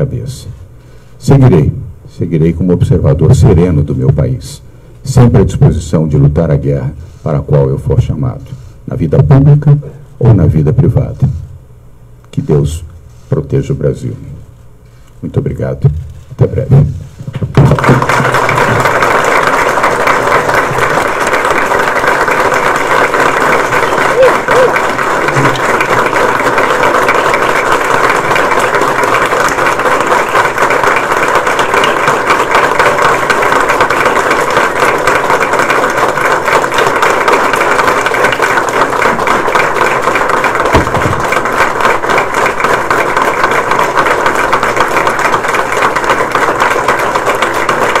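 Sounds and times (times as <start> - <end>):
crowd applause: 17.5 - 48.0.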